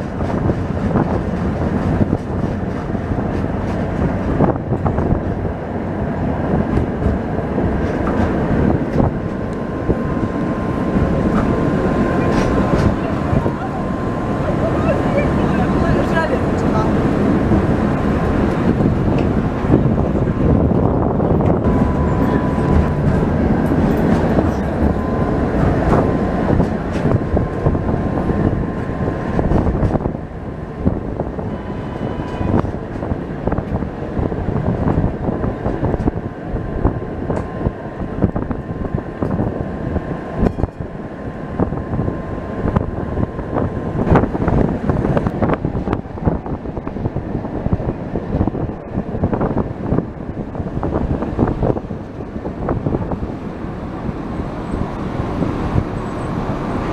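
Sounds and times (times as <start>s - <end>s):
wheels clacking over rail joints: 0.0s - 38.4s
tram rumbling on rails: 0.0s - 56.9s.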